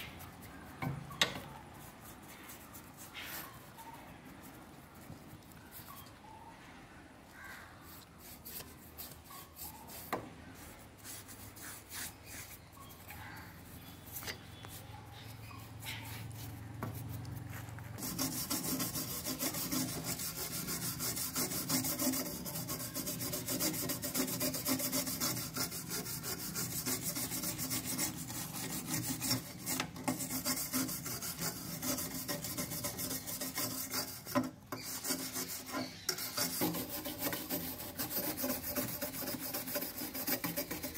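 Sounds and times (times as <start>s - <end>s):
tool scraping rusty metal: 11.0s - 40.9s.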